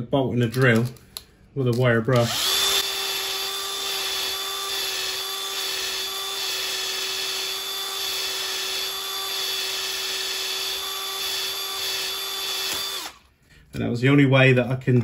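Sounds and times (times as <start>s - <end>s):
electric drill motor whine: 2.2s - 13.2s.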